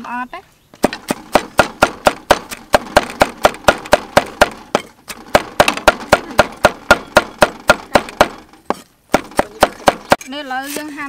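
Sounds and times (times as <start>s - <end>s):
cleaver chopping on wooden board: 0.8s - 10.2s.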